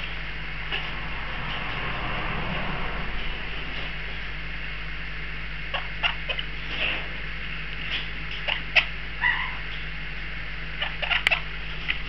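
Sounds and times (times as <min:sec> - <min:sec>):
low hum: 0:00.0 - 0:06.6
parakeet squeaks and clicks: 0:10.8 - 0:11.4.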